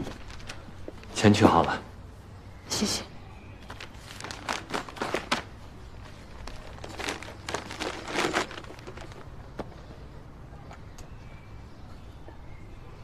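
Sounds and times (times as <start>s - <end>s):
paper envelope rustling: 0.0s - 1.1s, 3.7s - 9.7s.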